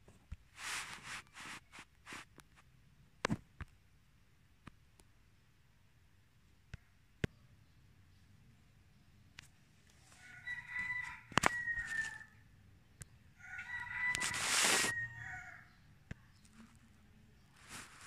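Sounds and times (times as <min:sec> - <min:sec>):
rooster crowing: 0:10.0 - 0:12.4, 0:13.4 - 0:15.9.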